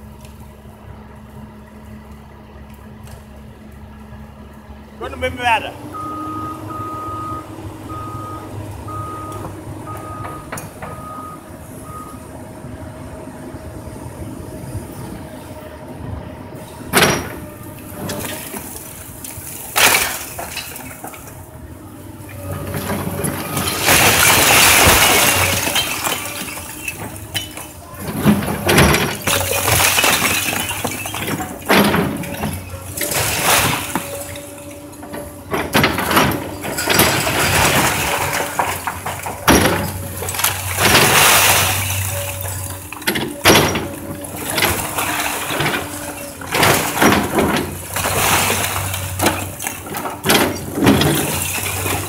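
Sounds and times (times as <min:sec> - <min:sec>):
excavator diesel engine running: 0:00.0 - 0:52.0
bricks and rubble clattering: 0:17.0 - 0:21.4, 0:22.3 - 0:52.0
brick chimney crashing down: 0:22.6 - 0:34.8, 0:35.5 - 0:52.0.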